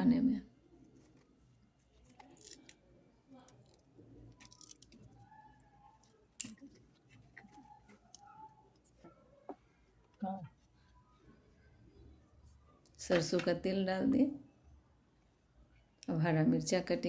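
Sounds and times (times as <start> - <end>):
scissors snipping: 2.1 - 2.8.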